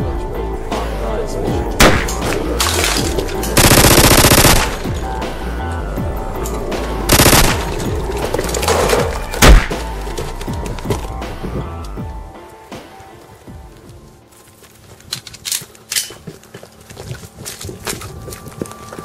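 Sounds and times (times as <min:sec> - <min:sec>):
background music: 0:00.0 - 0:16.1
automatic rifle gunfire: 0:03.6 - 0:04.9, 0:07.1 - 0:07.9, 0:09.4 - 0:09.8.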